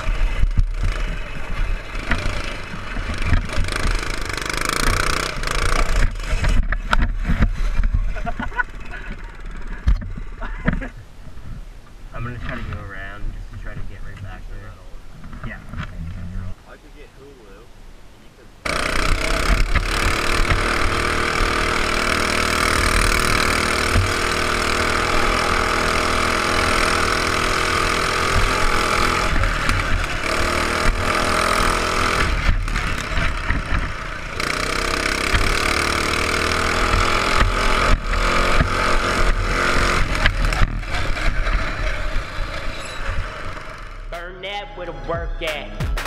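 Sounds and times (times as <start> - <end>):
mini bike engine revving: 0.0 - 10.9, 18.6 - 44.1
wind rumble on microphone: 6.0 - 8.6, 9.5 - 16.6.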